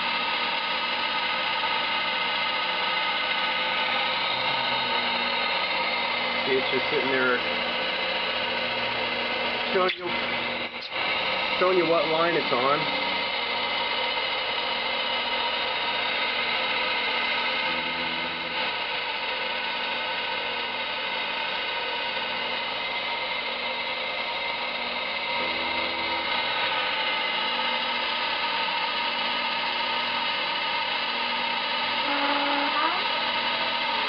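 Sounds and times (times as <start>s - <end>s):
lathe machine whine: 0.0s - 34.0s
brief low hum: 17.6s - 18.8s.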